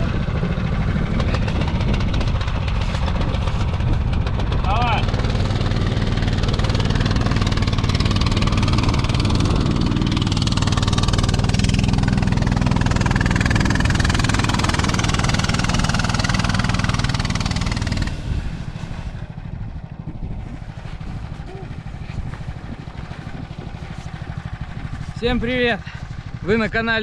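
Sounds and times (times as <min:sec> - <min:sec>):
small engine idling: 0:00.0 - 0:27.0.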